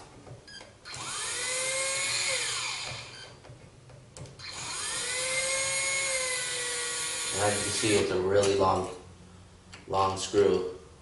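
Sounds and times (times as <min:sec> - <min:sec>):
cordless drill whirring: 0:00.8 - 0:03.3, 0:04.4 - 0:08.1
drill click: 0:00.9 - 0:03.2, 0:04.2 - 0:08.9.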